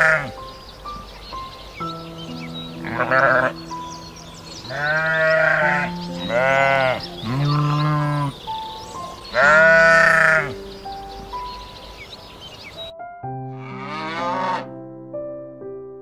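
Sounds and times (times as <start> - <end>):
soft held-note music: 0.0 - 15.7
livestock bleating: 2.8 - 3.7, 4.6 - 8.4, 9.3 - 10.6, 13.5 - 14.7.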